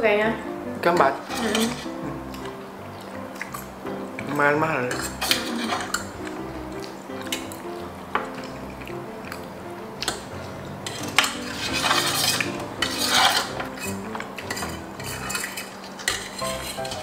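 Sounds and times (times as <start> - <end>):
cutlery clinking and scraping on tray: 0.8 - 2.6, 4.8 - 6.4, 7.2 - 7.6, 10.0 - 17.0.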